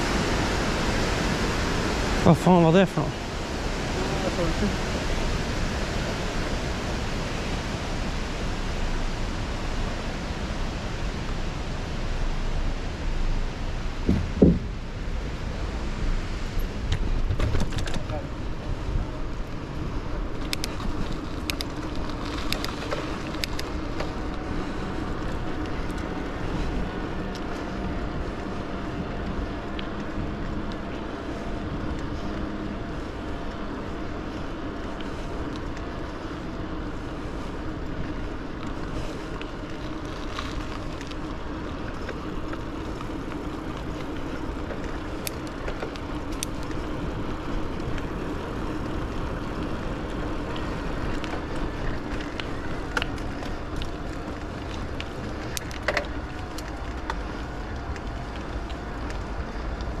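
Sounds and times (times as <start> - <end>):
tyre noise on asphalt: 0.0 - 60.0
steady low hum: 3.1 - 60.0
clicks and rattles from bumps: 16.9 - 18.2, 20.4 - 24.1, 54.7 - 58.1.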